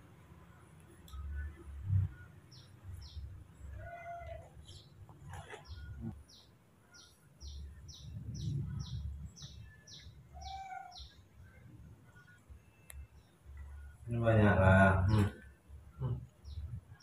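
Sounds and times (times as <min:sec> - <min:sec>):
small bird chirping: 0:01.0 - 0:14.1
lower bird calls: 0:01.2 - 0:11.3.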